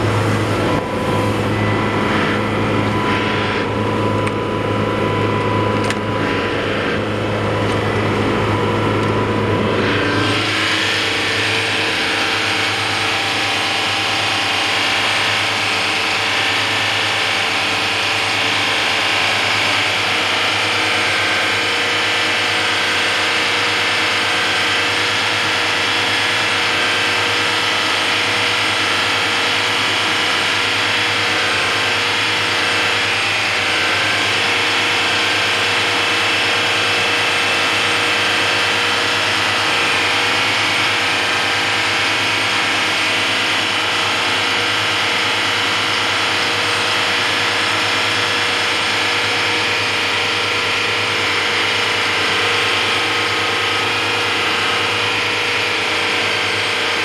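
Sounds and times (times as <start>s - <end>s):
boat diesel engine hum: 0.0s - 14.4s.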